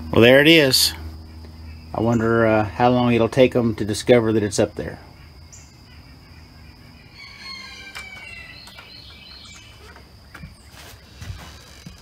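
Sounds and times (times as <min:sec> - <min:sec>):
chicken calling: 0:05.0 - 0:11.7.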